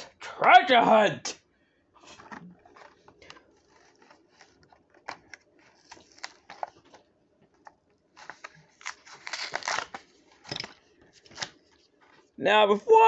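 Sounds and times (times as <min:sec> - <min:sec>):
plastic packaging clicks and rustles: 0:02.1 - 0:12.3.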